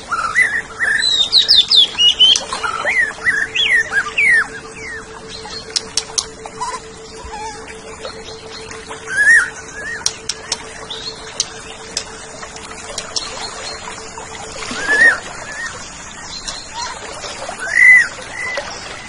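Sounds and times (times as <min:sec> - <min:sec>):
bird whistling: 0:00.1 - 0:17.0, 0:17.6 - 0:18.6
sharp ticks: 0:05.4 - 0:07.3, 0:08.6 - 0:13.9.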